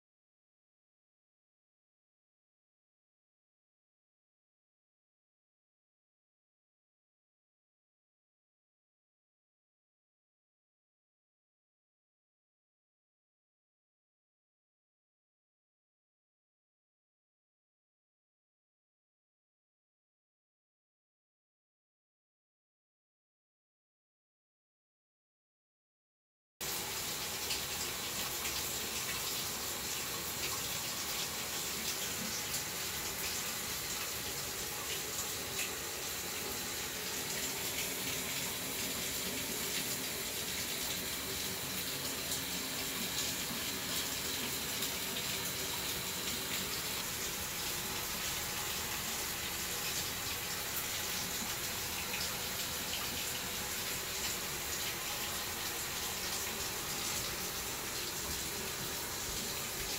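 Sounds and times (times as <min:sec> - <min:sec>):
water running from a tap: 0:26.6 - 0:59.9.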